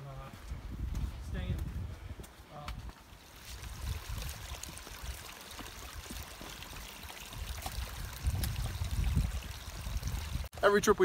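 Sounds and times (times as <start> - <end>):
stream water rushing: 3.1 - 10.5.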